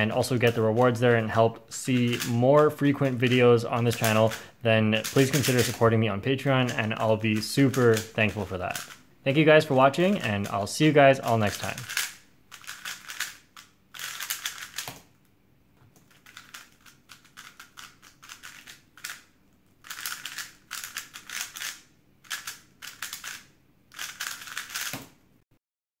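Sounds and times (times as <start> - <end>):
puzzle cube clicking: 2.0 - 2.4, 6.6 - 9.0, 11.2 - 15.1, 16.1 - 25.2.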